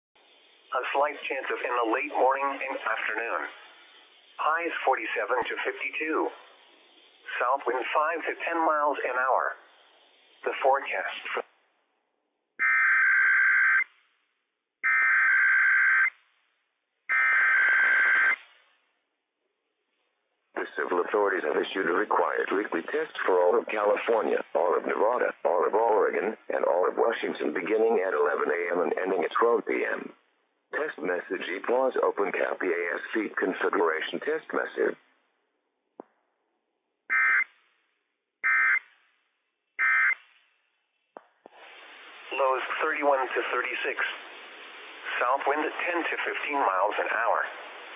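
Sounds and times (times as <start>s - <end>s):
low hiss: 0.2s - 12.5s, 16.0s - 35.5s, 37.3s - 47.9s
digital data tone bursts: 39.8s - 40.2s.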